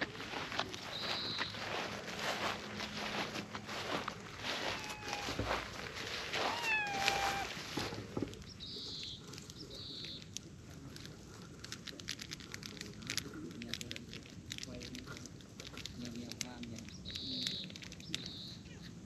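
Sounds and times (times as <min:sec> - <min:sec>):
footsteps through grass: 0:00.0 - 0:08.9
cat meowing: 0:04.4 - 0:05.6, 0:06.4 - 0:07.6.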